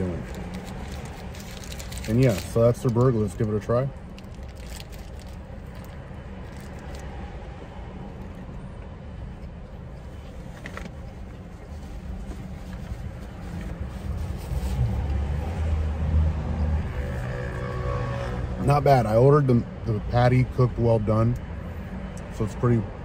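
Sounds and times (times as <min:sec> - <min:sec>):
low rumble inside car: 0:00.0 - 0:23.0
paper wrapper crinkling: 0:00.2 - 0:03.5, 0:04.2 - 0:07.0.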